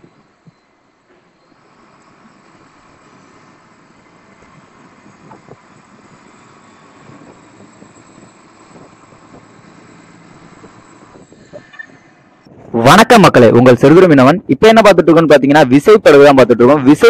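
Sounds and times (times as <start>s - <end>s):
boat engine running: 0.0s - 12.7s.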